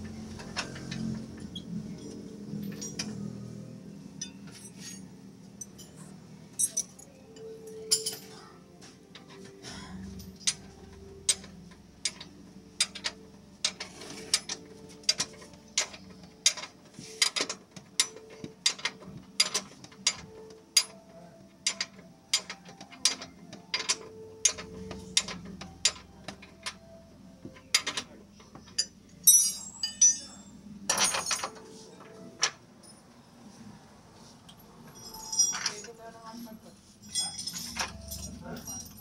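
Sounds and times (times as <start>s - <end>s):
hand tools clicking on metal: 10.4s - 21.0s, 21.6s - 26.8s.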